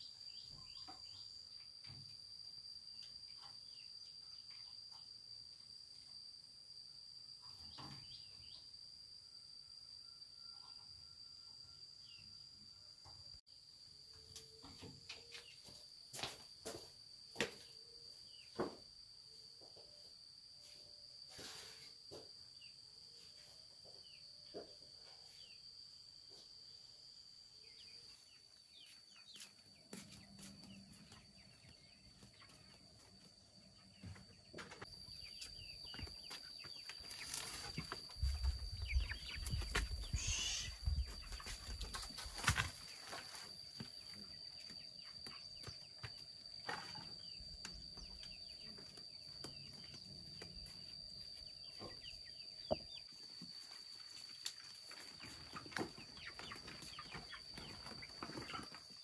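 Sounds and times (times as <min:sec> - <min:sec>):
high-pitched insect drone: 0:34.8 - 0:54.8
short calls: 0:40.0 - 0:40.9.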